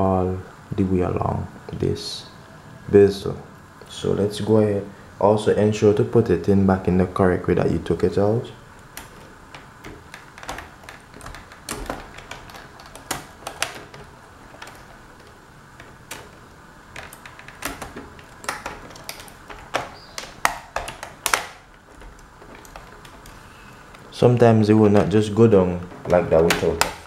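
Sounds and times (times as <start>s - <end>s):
plastic clicks and snaps: 17.0s - 24.1s, 25.8s - 27.0s.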